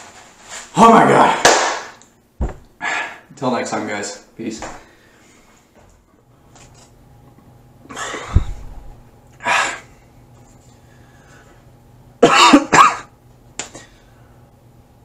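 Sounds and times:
man coughing hard: 12.2 - 13.1.

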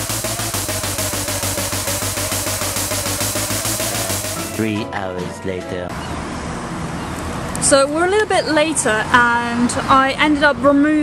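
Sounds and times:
music with fast steady beat: 0.0 - 4.8.

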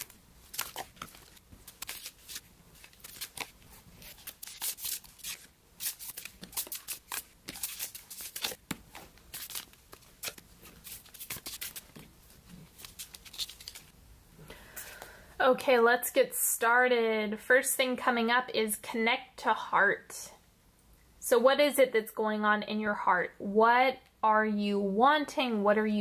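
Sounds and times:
cards snapping and sliding: 0.0 - 12.0, 12.8 - 13.9.

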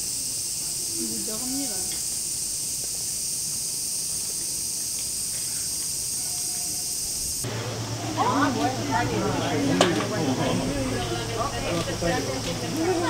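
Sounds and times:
high-pitched insect drone: 0.0 - 7.5.

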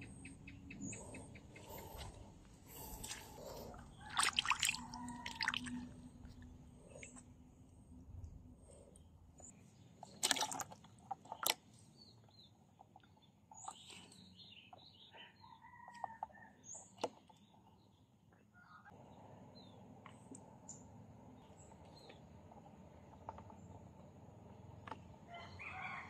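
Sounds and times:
birds chirping: 0.0 - 5.8.

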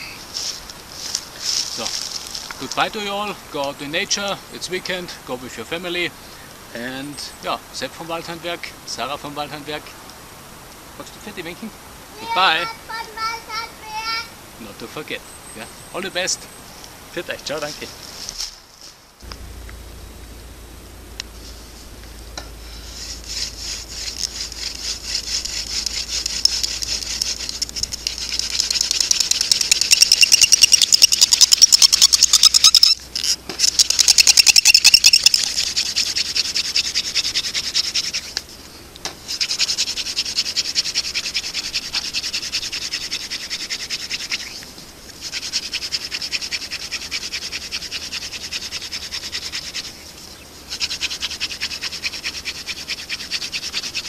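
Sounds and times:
hand drill spindle squeaking: 22.7 - 38.4.

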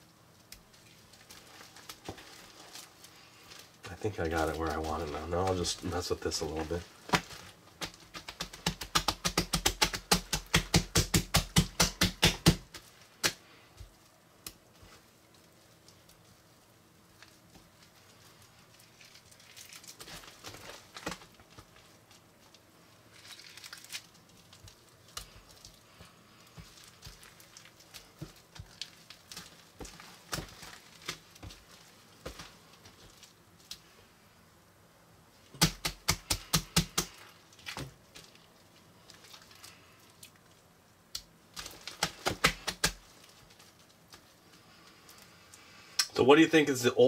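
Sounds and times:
hands slapping slime: 7.1 - 13.9, 35.6 - 37.9, 41.2 - 43.0.

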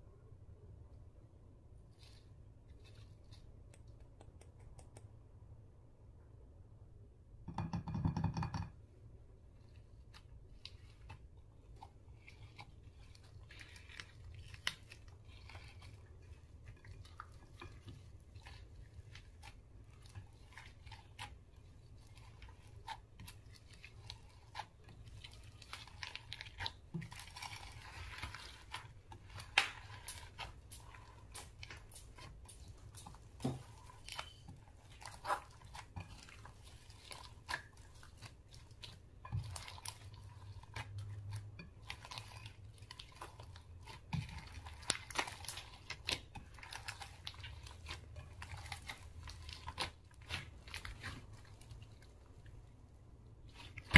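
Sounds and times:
slime squished by hand: 10.1 - 52.7, 53.4 - 53.9.

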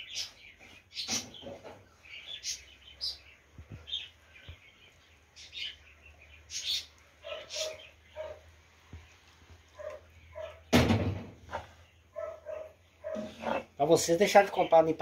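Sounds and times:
bird chirping: 0.0 - 10.8, 11.4 - 15.0
wooden spoon scraping: 13.0 - 13.8.

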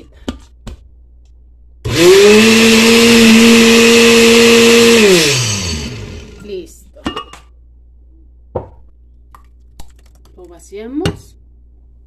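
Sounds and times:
blender motor running: 1.9 - 6.4.

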